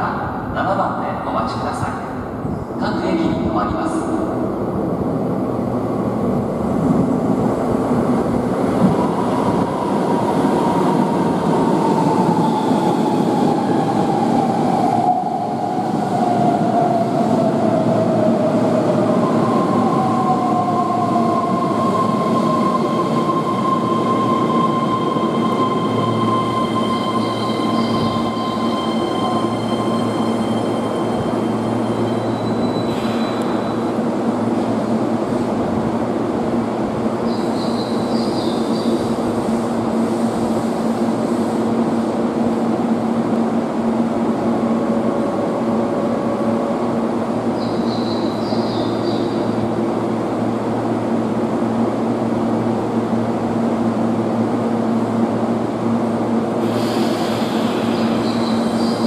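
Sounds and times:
electric train braking to a stop: 0:19.0 - 0:34.0, 0:56.6 - 0:59.0
steady high tone: 0:19.2 - 0:32.9.

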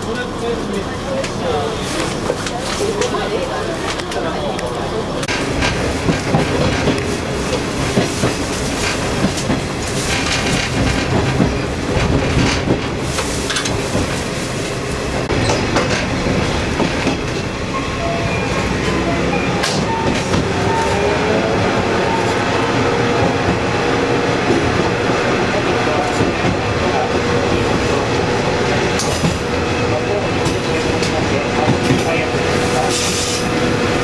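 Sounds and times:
train wheels clacking over rail joints: 0:05.2 - 0:14.3, 0:15.2 - 0:17.5, 0:22.2 - 0:33.6.

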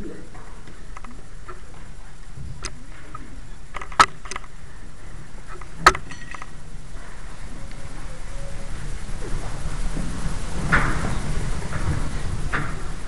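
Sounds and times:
hall room noise: 0:00.0 - 0:13.0
sharp clicks: 0:02.6 - 0:04.6.

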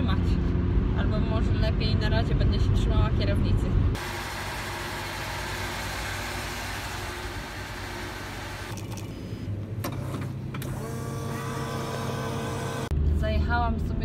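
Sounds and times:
vending machine motor hum: 0:04.0 - 0:12.9.

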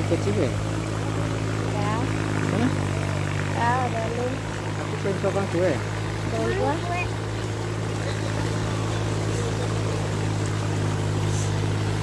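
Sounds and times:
low mechanical hum: 0:00.0 - 0:12.0
water splashing over rocks: 0:03.0 - 0:12.0.

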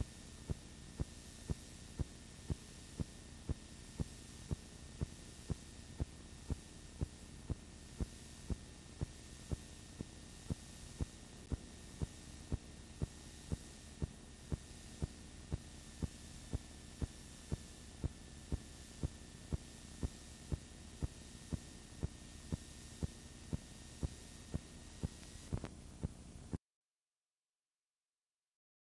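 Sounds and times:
faint high whine: 0:00.0 - 0:26.6
soundtrack hum and hiss: 0:00.0 - 0:26.6.

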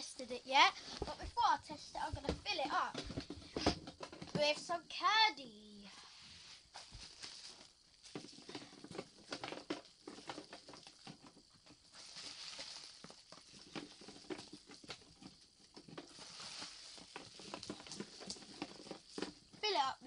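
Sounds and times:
sweet wrappers crinkling: 0:06.8 - 0:15.2, 0:15.8 - 0:19.6.

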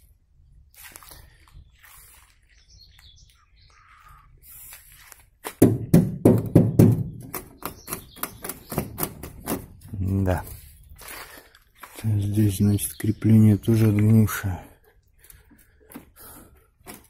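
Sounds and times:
rapid knocks and taps: 0:05.5 - 0:09.6.

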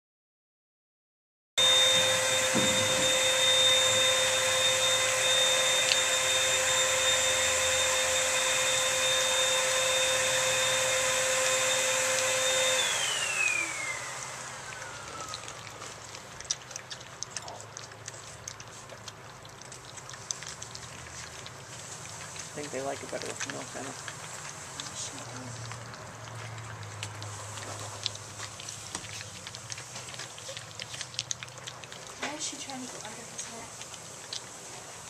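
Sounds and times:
electric motor whining: 0:01.6 - 0:15.7
puppies lapping and chewing: 0:01.6 - 0:35.0.

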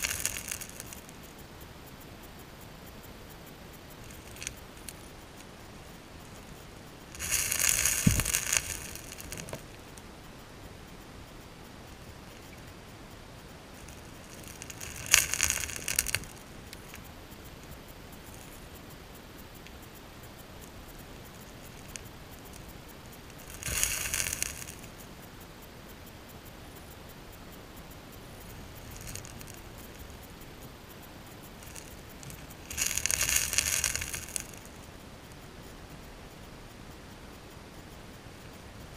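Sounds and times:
gravel crackling and rattling: 0:00.0 - 0:10.1, 0:13.4 - 0:26.2, 0:27.8 - 0:35.8
underwater flowing water hiss: 0:00.0 - 0:11.3, 0:12.0 - 0:35.2.

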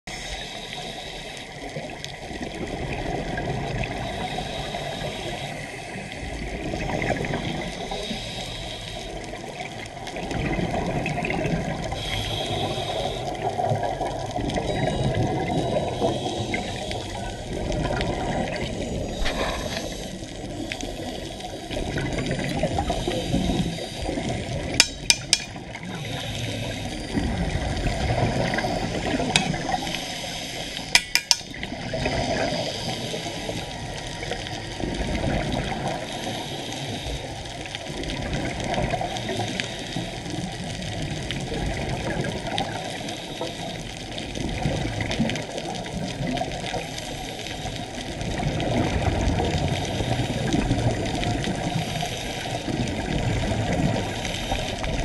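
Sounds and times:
water rushing underwater: 0:00.1 - 0:55.0
sharp clicks: 0:24.8 - 0:25.6, 0:30.9 - 0:31.6.

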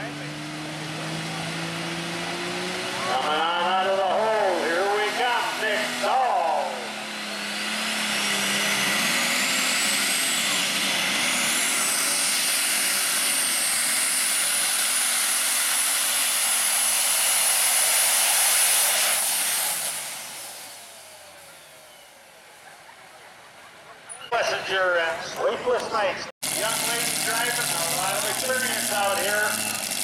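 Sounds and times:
tractor engine under load: 0:00.0 - 0:30.0
turbo whine: 0:03.0 - 0:22.4, 0:26.4 - 0:30.0.

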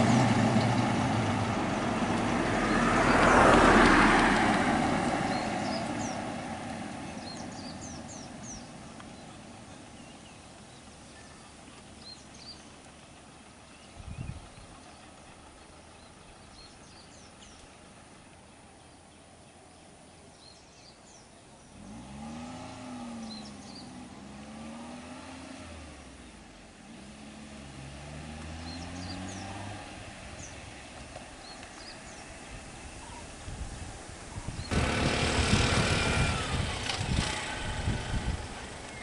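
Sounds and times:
car engine accelerating past: 0:00.0 - 0:10.1, 0:21.7 - 0:33.3, 0:34.6 - 0:39.0
birds chirping faintly: 0:00.0 - 0:33.4.

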